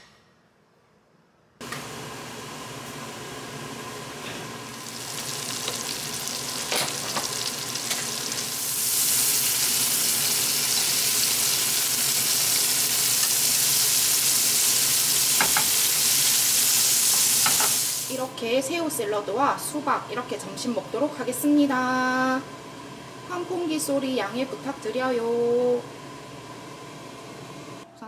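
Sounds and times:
shrimp sizzling in butter: 0:04.7 - 0:18.2.

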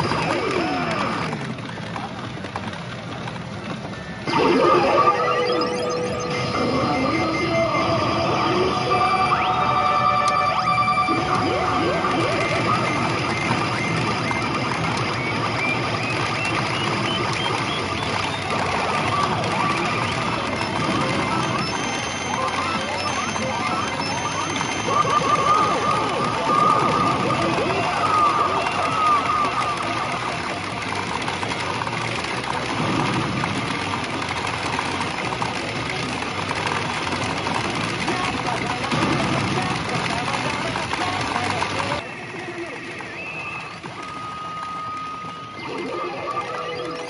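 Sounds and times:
clatter of steel balls: 0:00.0 - 0:06.8, 0:11.1 - 0:42.0
busy pachinko parlour din: 0:00.0 - 0:47.0
pachinko machine electronic effects: 0:00.0 - 0:47.0
rising short beeps: 0:04.3 - 0:14.2.

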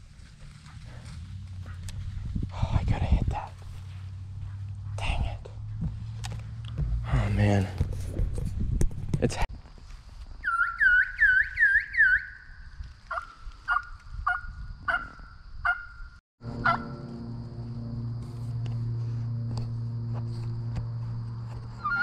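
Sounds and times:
steady low hum: 0:00.2 - 0:08.9, 0:16.4 - 0:22.0.

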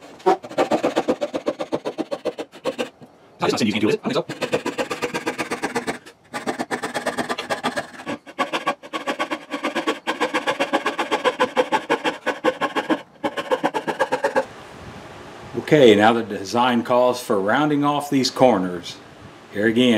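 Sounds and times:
coping saw cutting wood: 0:00.0 - 0:14.5.

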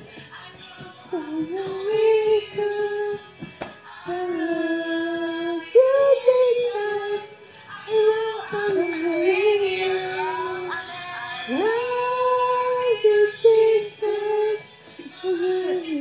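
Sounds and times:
high voice singing slowly: 0:04.0 - 0:16.0.

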